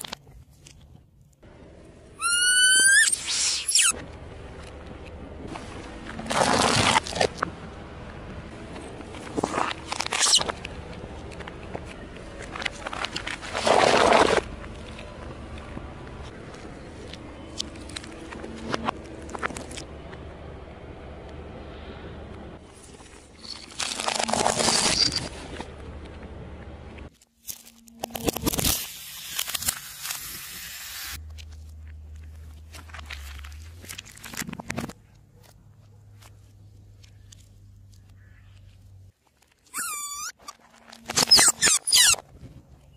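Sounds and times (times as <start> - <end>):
low engine hum: 0.2 - 2.4, 3.2 - 27.1, 31.1 - 39.2
squeaking crackling burst: 2.2 - 4.0, 39.7 - 42.2
gel balls crackling under tyre: 2.2 - 7.6, 8.2 - 20.3, 31.2 - 42.9
tyre crushing small objects: 9.2 - 15.1, 23.0 - 25.3
loud crunch: 9.2 - 15.2.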